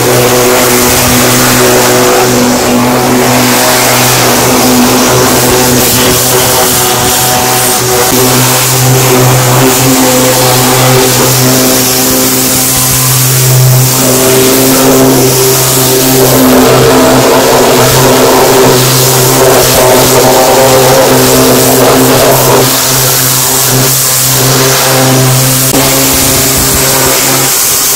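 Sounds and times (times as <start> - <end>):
pressure washer pump droning: 0.0 - 27.9
water jet hissing: 0.0 - 27.9.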